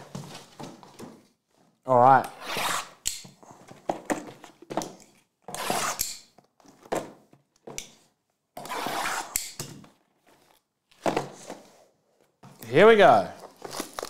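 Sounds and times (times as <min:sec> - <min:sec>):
plastic wrap crinkling: 0:13.3 - 0:14.0.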